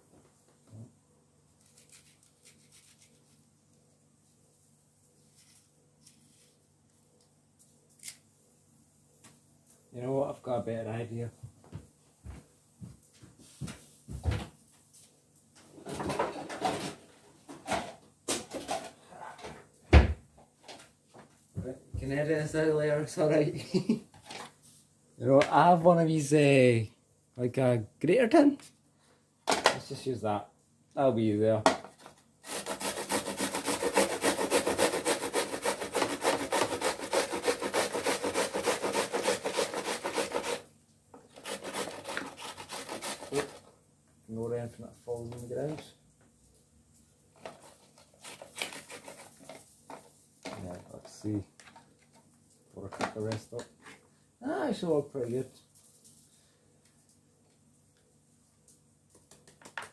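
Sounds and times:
onion rasping on a metal grater: 0:01.7 - 0:03.3, 0:32.4 - 0:40.7, 0:41.3 - 0:43.6, 0:47.6 - 0:49.4.

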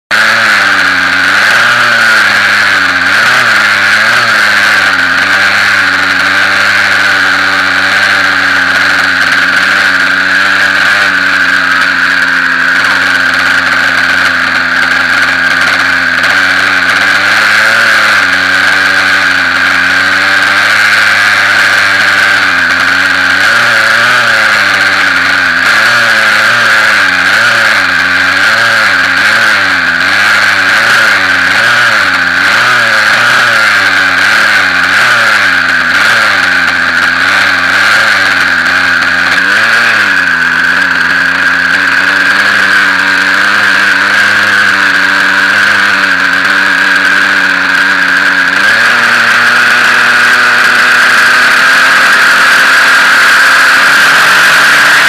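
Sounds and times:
model helicopter motor whining: 0:00.1 - 0:55.0.

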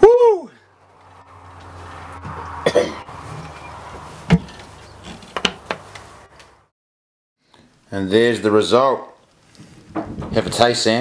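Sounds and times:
man coughing: 0:02.6 - 0:03.1.

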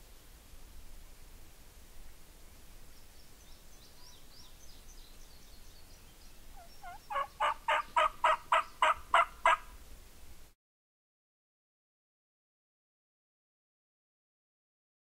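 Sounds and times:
faint songbird chirps: 0:02.7 - 0:09.0
wild turkey calling: 0:06.5 - 0:09.7.

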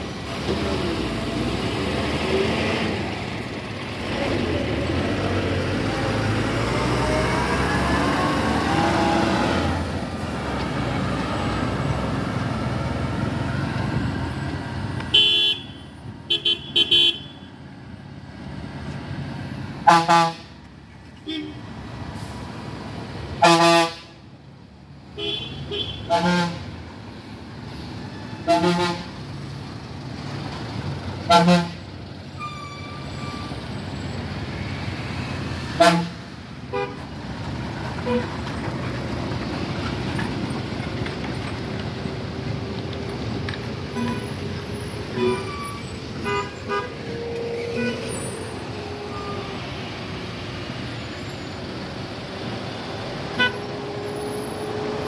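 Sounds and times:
heavy truck engines: 0:00.0 - 0:55.0
vehicle horns honking: 0:15.1 - 0:17.5, 0:19.8 - 0:20.5, 0:23.4 - 0:24.1, 0:25.2 - 0:26.7, 0:28.4 - 0:29.1, 0:31.3 - 0:31.8, 0:35.8 - 0:37.0, 0:43.8 - 0:48.8, 0:53.3 - 0:53.9.

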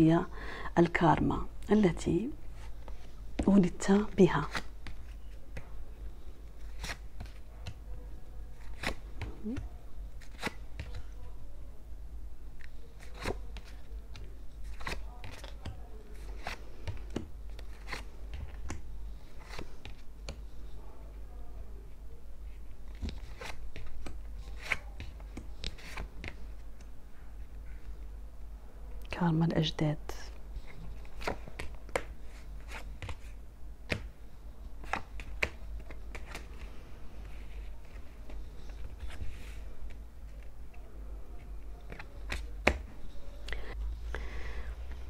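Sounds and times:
cards snapping and flicking: 0:08.6 - 0:11.1, 0:34.8 - 0:36.5.

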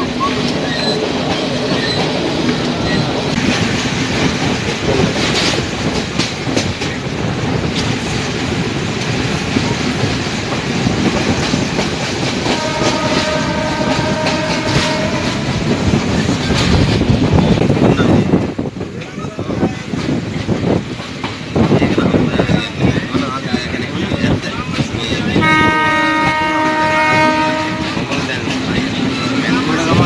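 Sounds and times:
train running noise: 0:00.0 - 0:30.0
train wheels clattering: 0:00.0 - 0:30.0
train horn blast: 0:12.4 - 0:15.7, 0:25.4 - 0:28.3.

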